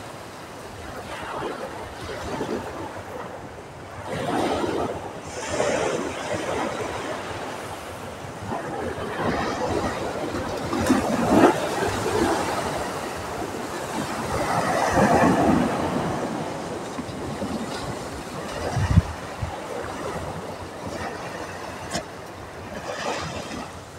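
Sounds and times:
small waves washing up beach: 0:00.0 - 0:23.9.

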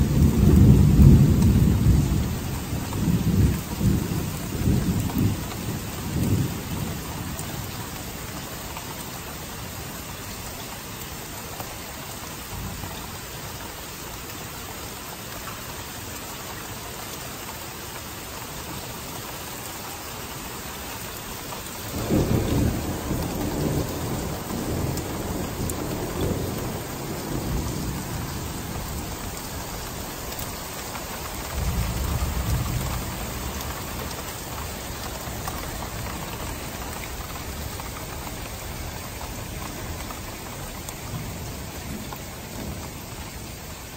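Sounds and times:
rolling thunder: 0:00.0 - 0:07.0, 0:21.9 - 0:29.4
steady rain: 0:00.0 - 0:43.9.

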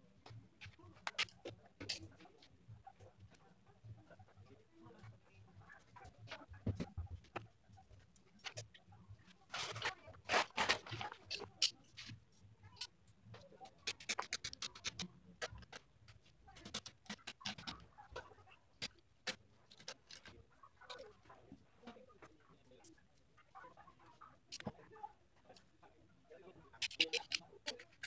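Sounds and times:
fabric tearing: 0:09.5 - 0:11.0.

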